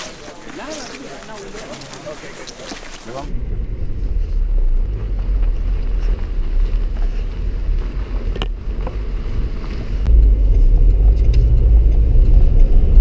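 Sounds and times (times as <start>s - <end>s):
wind buffeting microphone: 3.2s - 13.0s.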